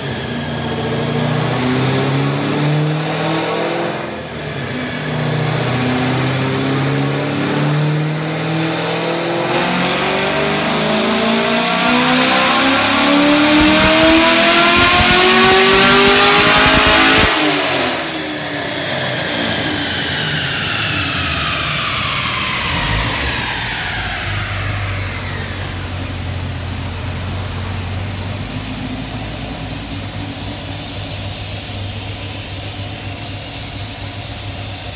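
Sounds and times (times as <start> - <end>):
engine and rollers whine falling: 0.0 - 34.9.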